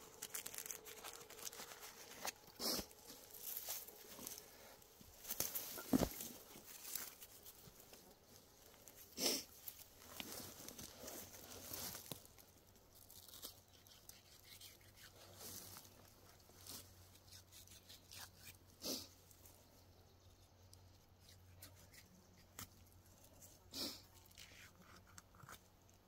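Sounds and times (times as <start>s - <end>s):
knife scraping and tearing hide: 13.1s - 15.8s, 17.1s - 19.1s.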